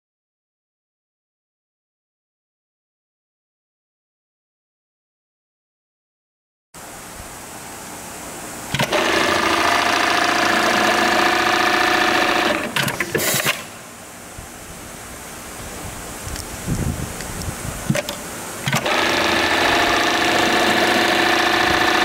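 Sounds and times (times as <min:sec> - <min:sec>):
sewing machine hum: 0:08.7 - 0:13.6, 0:18.6 - 0:22.0
mechanical clicks and clunks: 0:08.7 - 0:13.7, 0:17.9 - 0:22.0
sewing machine stitching: 0:08.7 - 0:13.7, 0:18.7 - 0:22.0.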